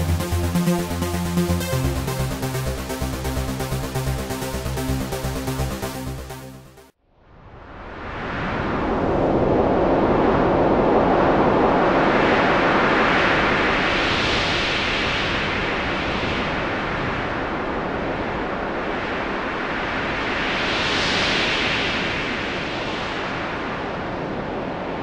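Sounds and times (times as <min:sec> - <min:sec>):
wind: 0:07.0 - 0:25.0.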